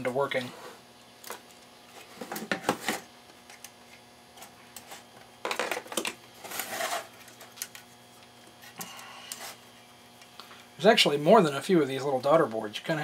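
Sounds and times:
metal scraping on wood: 6.4 - 7.3.

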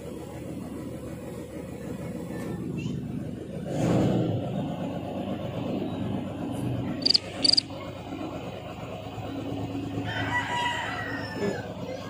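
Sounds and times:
low steady rumble: 4.3 - 10.1
sharp high squeaks: 7.0 - 7.6
rooster crowing: 10.0 - 11.6.

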